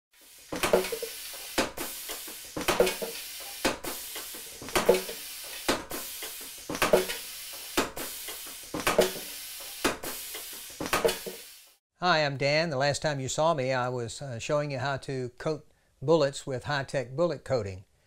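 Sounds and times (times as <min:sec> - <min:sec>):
air hissing: 0:00.2 - 0:11.8.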